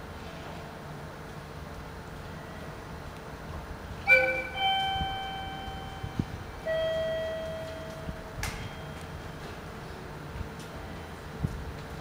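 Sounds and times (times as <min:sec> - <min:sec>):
public-address chime: 0:04.1 - 0:09.4.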